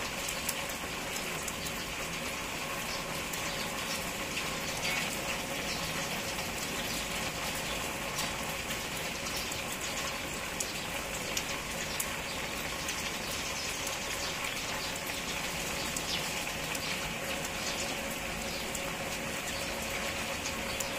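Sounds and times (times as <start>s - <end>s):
drips and splashes: 0.0s - 20.9s
steady rainfall: 0.0s - 20.9s.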